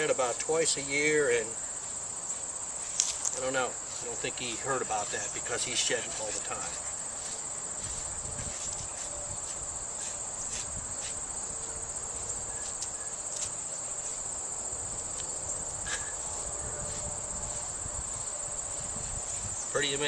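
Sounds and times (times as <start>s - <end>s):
insect trill: 0.0s - 20.0s.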